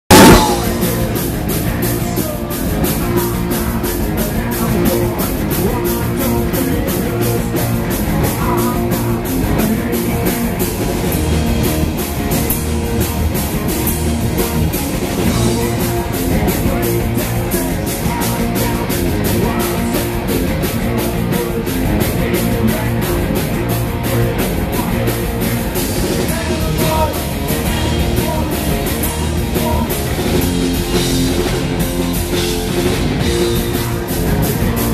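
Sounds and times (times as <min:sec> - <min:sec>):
bass guitar: 0:00.0 - 0:34.9
fast drum kit: 0:00.0 - 0:34.9
man singing: 0:00.1 - 0:11.5, 0:15.1 - 0:31.5
electric guitar: 0:00.1 - 0:34.9.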